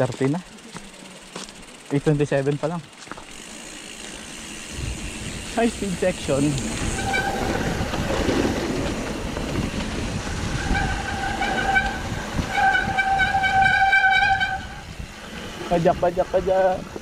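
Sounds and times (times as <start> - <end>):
tyres rumbling on trail: 0.0 - 17.0
wind rushing over microphone: 4.6 - 17.0.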